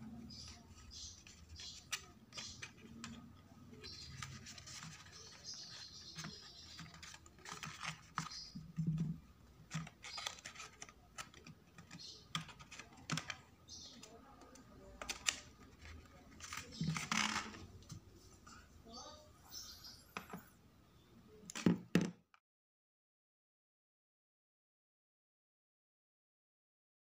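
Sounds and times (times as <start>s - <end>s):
cardstock rustling and crinkling: 0.3s - 14.0s, 14.9s - 18.0s.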